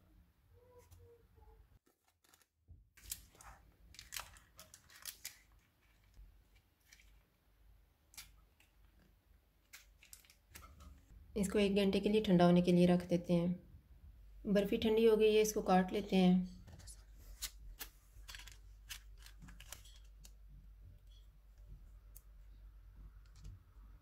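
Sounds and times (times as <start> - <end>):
butter paper rustling: 1.8 - 7.3, 16.8 - 20.4.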